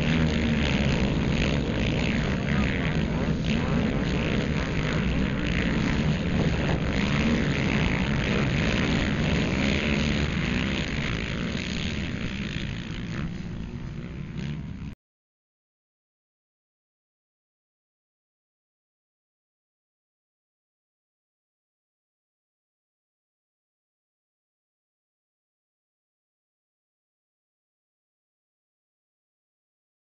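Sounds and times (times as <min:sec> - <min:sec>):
quad bike engines racing: 0:00.0 - 0:15.0.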